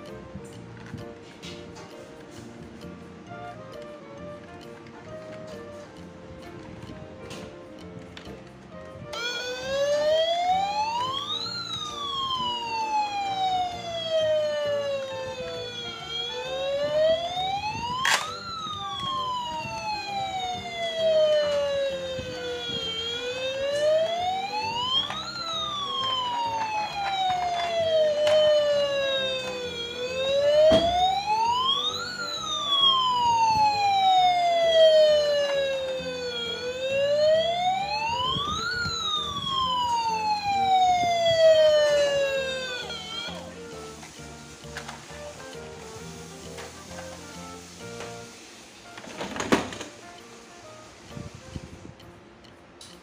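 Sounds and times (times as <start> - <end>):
toy electronic siren wailing: 9.1 - 43.8.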